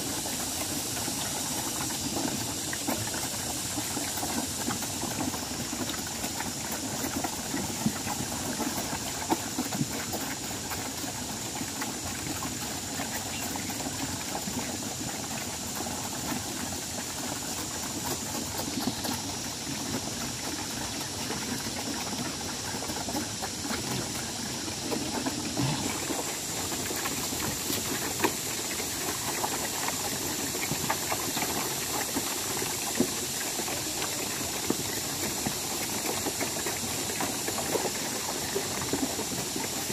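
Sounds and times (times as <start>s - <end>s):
pigs slurping and chomping feed: 0.0s - 39.9s.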